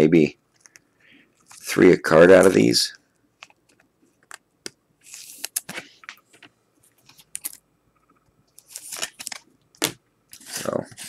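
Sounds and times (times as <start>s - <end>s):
cards flipped by hand: 5.0s - 7.6s, 8.6s - 10.8s.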